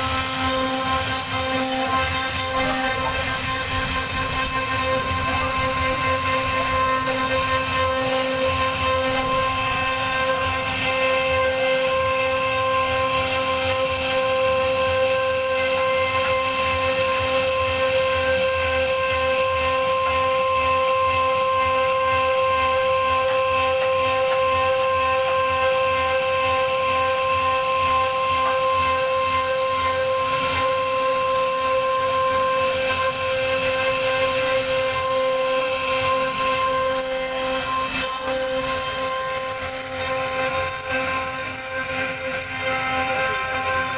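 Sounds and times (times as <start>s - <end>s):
bit cutting wood: 0.0s - 14.5s, 28.7s - 43.9s
cnc router spindle whining: 0.0s - 43.9s.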